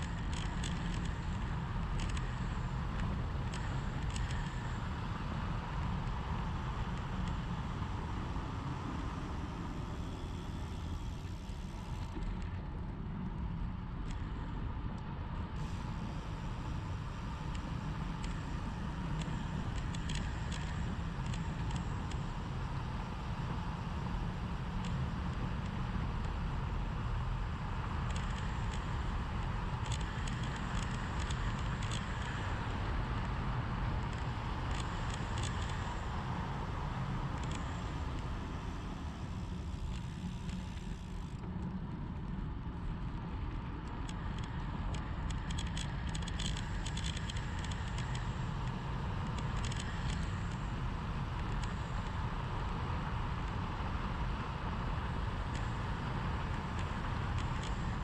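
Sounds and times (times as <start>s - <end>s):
small ticks and rattles: 0.0s - 8.2s, 15.6s - 58.0s.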